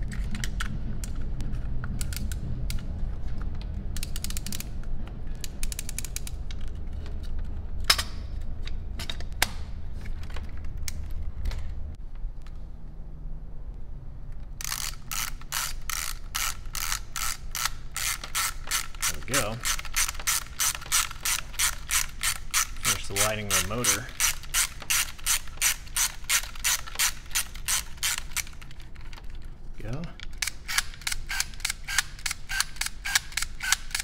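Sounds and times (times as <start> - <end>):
ratchet clicks of winding: 4.0 - 4.8, 5.4 - 6.7, 14.6 - 28.7, 30.0 - 34.0.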